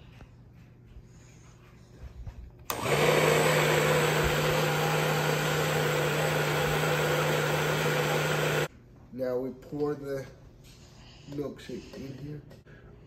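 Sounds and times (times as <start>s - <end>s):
blender motor humming: 2.7s - 8.7s
milkshake churning in blender: 2.7s - 8.7s.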